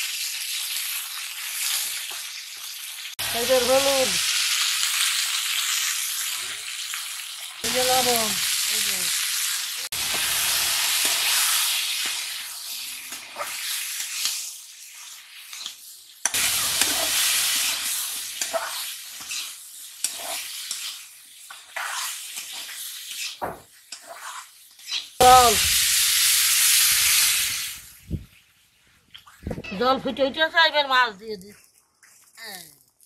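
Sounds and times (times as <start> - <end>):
vegetables sizzling in oil: 0.0 - 28.6
loud hiss of steam: 7.6 - 13.0, 16.4 - 18.4, 25.2 - 28.0
metal spatula scraping pan: 18.4 - 25.2.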